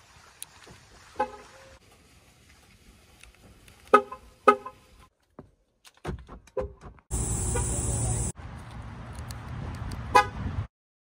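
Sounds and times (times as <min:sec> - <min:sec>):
car horn chirps: 0:07.1 - 0:08.3.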